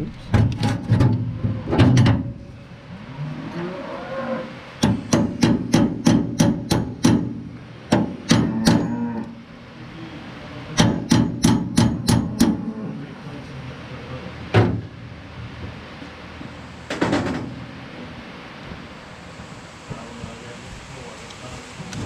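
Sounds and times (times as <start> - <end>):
hammer striking steel punch: 4.8 - 8.9, 10.8 - 12.6.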